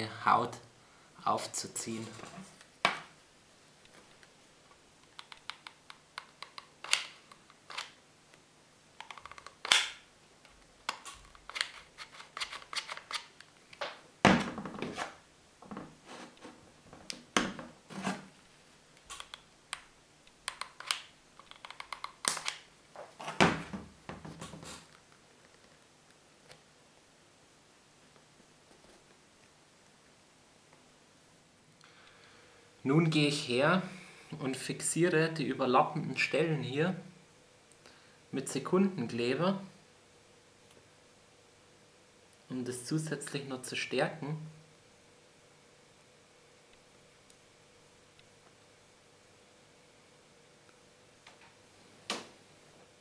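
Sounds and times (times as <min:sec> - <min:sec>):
glue gun clicks and taps: 0:05.0 - 0:07.9, 0:19.0 - 0:22.6.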